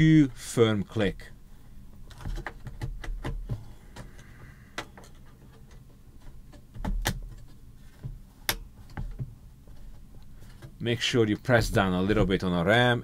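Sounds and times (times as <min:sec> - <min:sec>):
handling knocks and thumps: 0:02.1 - 0:10.8, 0:11.5 - 0:12.6.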